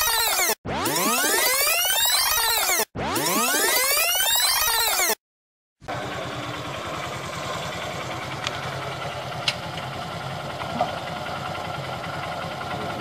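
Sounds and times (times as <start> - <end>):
motorcycle engine idling: 5.8 - 13.0.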